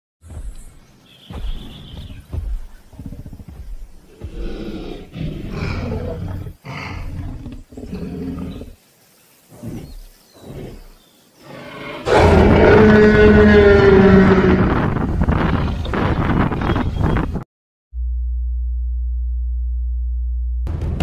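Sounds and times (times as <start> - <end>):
deep dinosaur roars and growls: 4.1 - 8.8, 9.6 - 15.1.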